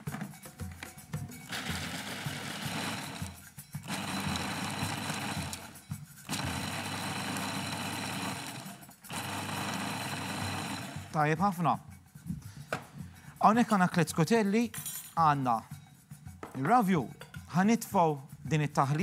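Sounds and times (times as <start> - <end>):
food processor grinding: 1.5 - 11.2.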